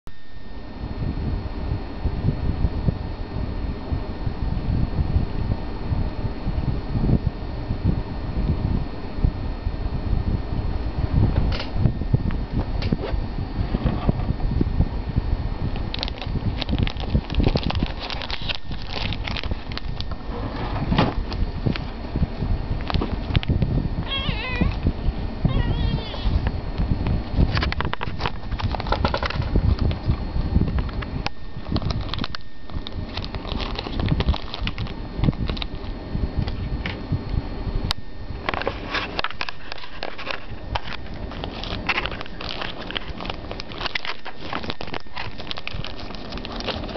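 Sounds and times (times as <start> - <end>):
microphone handling rumble: 0.8 - 46.9
plastic packet crinkling: 15.9 - 20.1, 31.6 - 35.9, 39.5 - 46.9
cats licking and chewing: 39.8 - 46.9.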